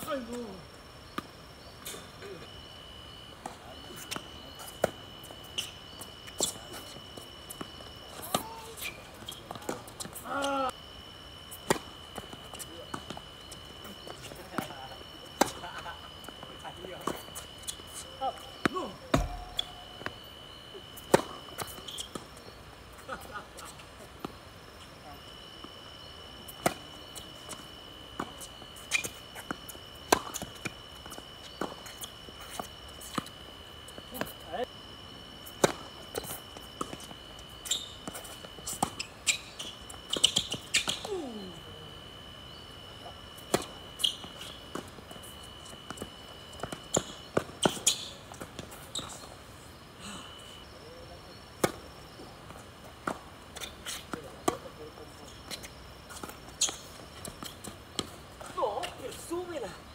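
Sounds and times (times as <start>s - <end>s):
high-pitched whine: 0.0s - 49.3s
thin steady high tone: 0.0s - 52.9s
tennis balls bouncing on court: 1.1s - 2.6s, 6.3s - 10.6s, 11.6s - 18.0s, 18.6s - 20.2s, 21.0s - 22.3s, 26.5s - 34.5s, 35.5s - 41.3s, 43.3s - 49.2s, 51.6s - 54.7s, 55.4s - 59.3s.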